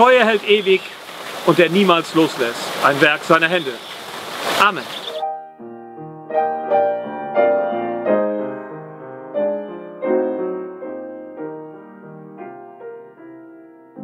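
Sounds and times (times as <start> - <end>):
slow gentle piano piece: 5.1 - 14.0.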